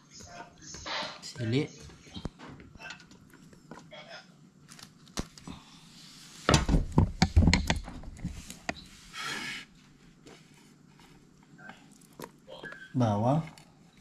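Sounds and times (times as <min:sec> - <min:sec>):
thumps and knocks: 0:06.5 - 0:08.8.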